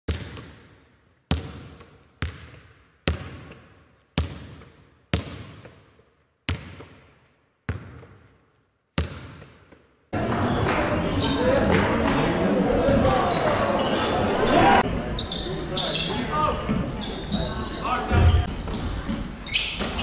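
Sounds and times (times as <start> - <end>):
basketball bouncing on hard floor: 1.3 - 3.6, 4.2 - 5.9, 6.5 - 7.1, 7.7 - 8.3, 9.0 - 9.8.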